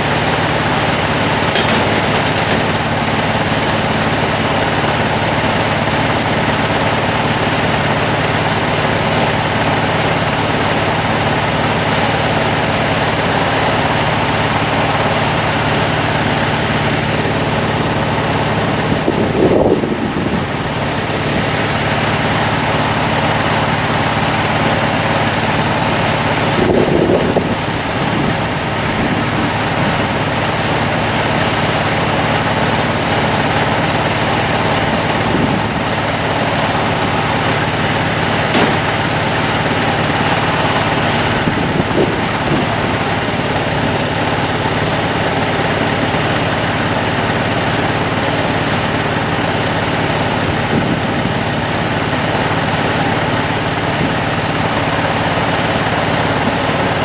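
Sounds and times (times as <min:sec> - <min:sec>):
engine idling: 0:00.0 - 0:57.0.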